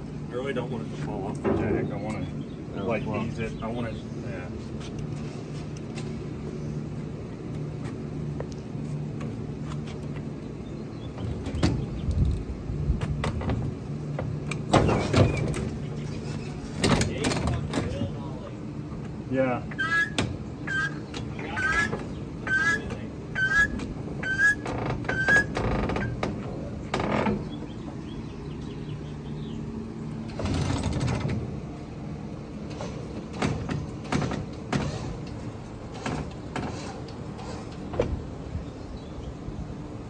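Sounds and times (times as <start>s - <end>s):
knocks and clanks: 13.0s - 15.8s, 16.4s - 18.2s, 30.3s - 31.6s, 32.7s - 38.2s
short rising squeak: 19.7s - 21.0s, 21.6s - 26.1s.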